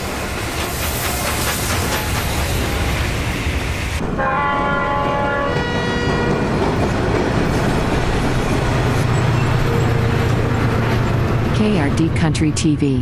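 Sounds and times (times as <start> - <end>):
train rumbling: 0.0 - 13.0
locomotive horn chord: 4.2 - 6.4.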